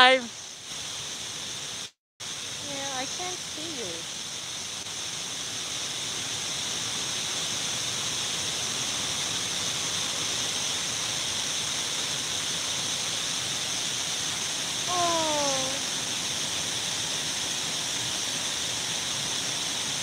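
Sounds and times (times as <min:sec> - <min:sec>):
waterfall rushing: 0:14.9 - 0:16.1.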